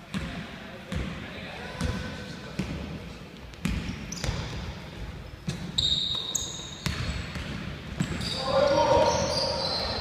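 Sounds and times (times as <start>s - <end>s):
sneaker squeaking: 3.6s - 10.0s
basketball bouncing on wooden floor: 6.8s - 8.3s.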